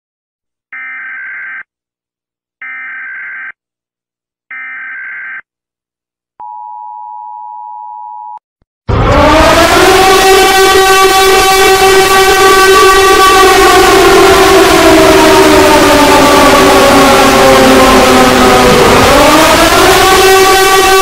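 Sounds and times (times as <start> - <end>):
distorted siren winding up: 8.9 - 21.0.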